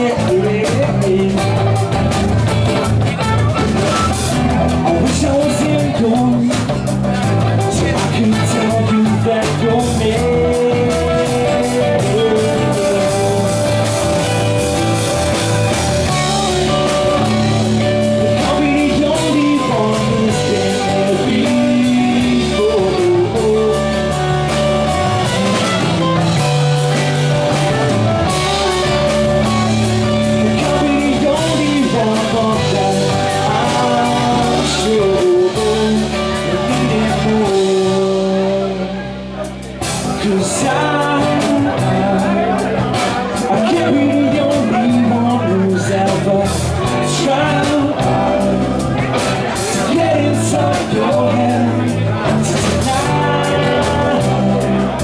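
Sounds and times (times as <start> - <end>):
lead vocalist singing: 0.0 - 3.7, 4.3 - 55.0
drum kit beat: 0.0 - 55.0
electric guitars: 0.0 - 55.0
live rock band playing: 0.0 - 55.0.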